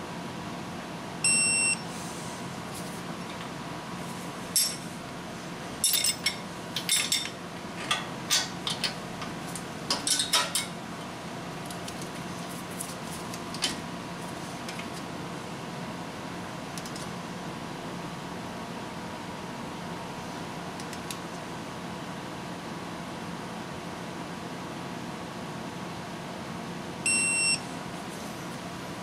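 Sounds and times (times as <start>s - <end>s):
torque wrench beep: 1.2s - 1.8s, 27.1s - 27.6s.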